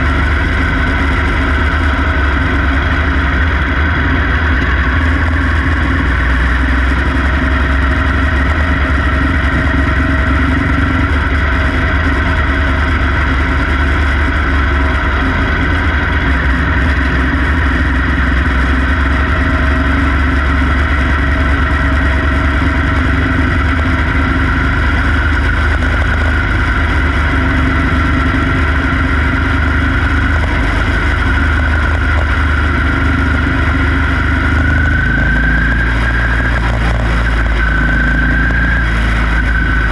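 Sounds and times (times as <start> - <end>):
heavy low rumble: 0.0 - 39.9
small race car engine running: 0.0 - 39.9.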